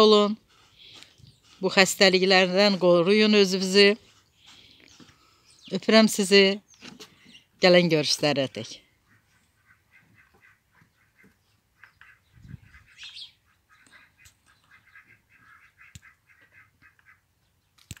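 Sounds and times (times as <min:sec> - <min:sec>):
ducks calling faintly: 0:08.8 - 0:17.9.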